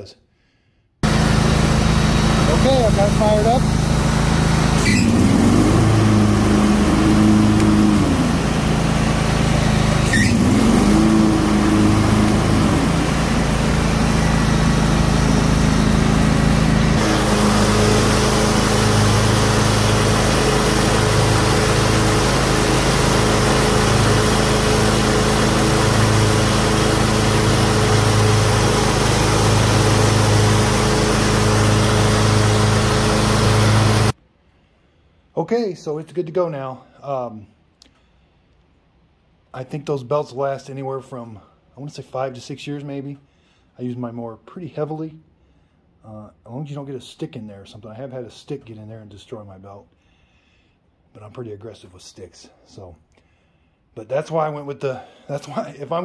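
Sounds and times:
riding mower engine running: 0:01.0 - 0:34.2.

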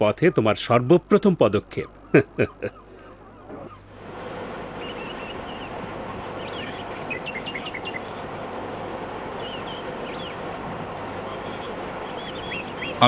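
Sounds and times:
distant background rush: 0:00.0 - 0:13.0
small birds chirping: 0:01.3 - 0:03.9, 0:04.8 - 0:08.6, 0:09.2 - 0:13.0.

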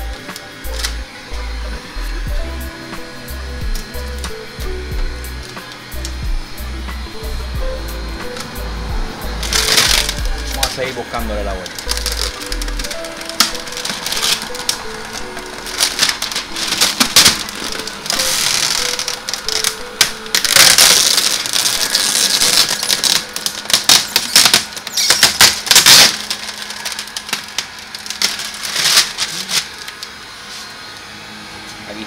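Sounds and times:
plastic film crackling: 0:00.0 - 0:01.4, 0:02.8 - 0:07.3, 0:08.2 - 0:30.2.

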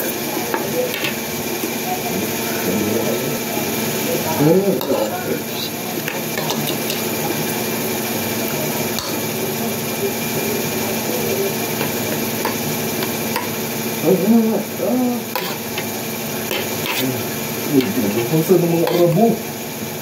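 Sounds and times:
murmur of voice: 0:00.0 - 0:19.5
steady background hum: 0:00.0 - 0:20.0
cutlery clicking on ceramic plate: 0:06.0 - 0:07.1.

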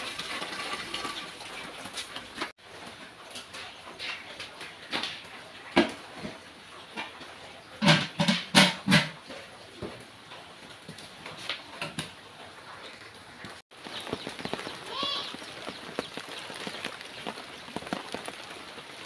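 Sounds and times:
metal pot lid clanking: 0:07.8 - 0:09.2.

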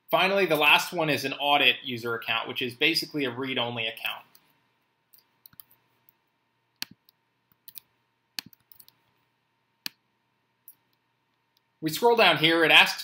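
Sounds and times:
mouse and keyboard clicks: 0:05.2 - 0:05.8, 0:06.8 - 0:09.0.

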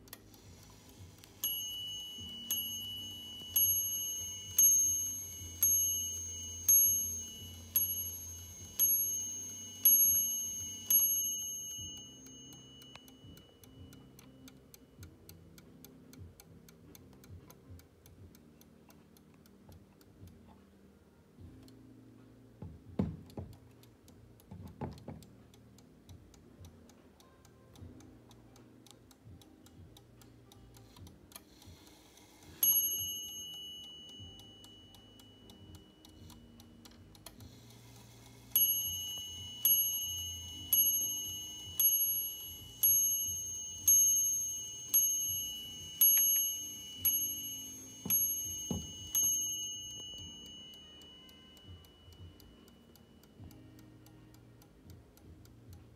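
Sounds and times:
clock ticking: 0:00.0 - 0:55.9
clock bell striking: 0:01.4 - 0:13.9, 0:32.6 - 0:36.4, 0:38.5 - 0:53.2.

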